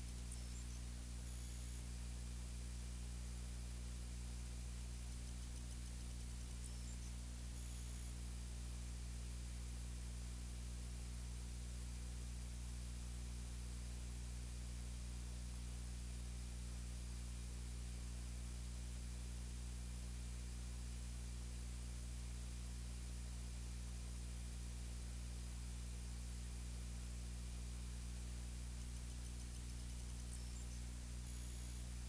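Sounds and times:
electrical hum: 0:00.0 - 0:32.0.

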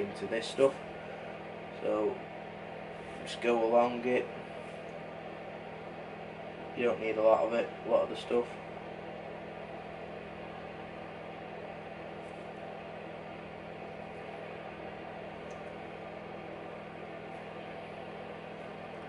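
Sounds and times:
room heater whirring: 0:00.0 - 0:19.0.

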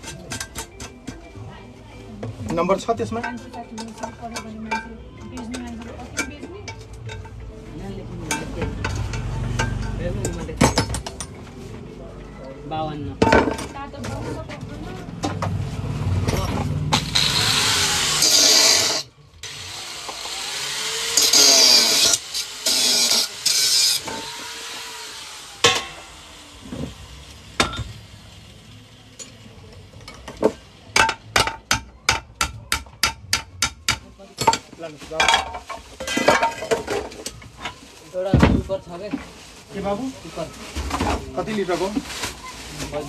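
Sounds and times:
power tool running: 0:16.8 - 0:28.4.

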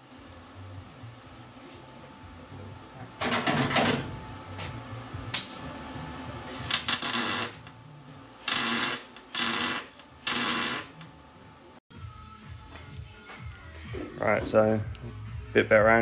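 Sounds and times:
welder crackling: 0:06.7 - 0:07.7, 0:08.5 - 0:11.0.

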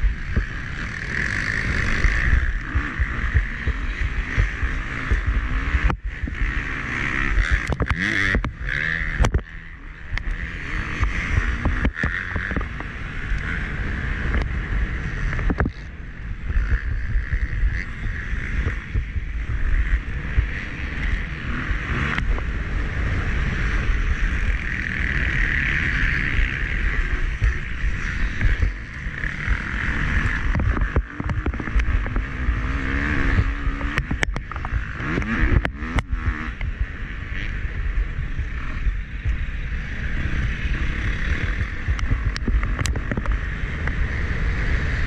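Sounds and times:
dirt bike engine running hard: 0:00.0 - 0:45.0
wind buffeting on microphone: 0:10.0 - 0:45.0.

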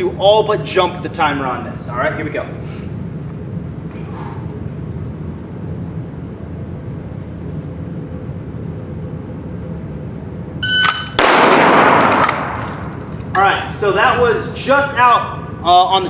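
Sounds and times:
steady low hum: 0:00.0 - 0:16.0
shot timer beep: 0:10.6 - 0:11.2
pistol shot: 0:10.9 - 0:12.6.

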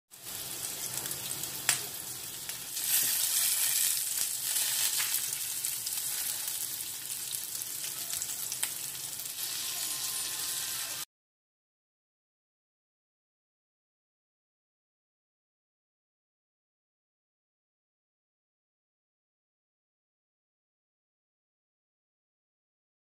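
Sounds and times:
fish sizzling in frying pan: 0:00.1 - 0:11.1.

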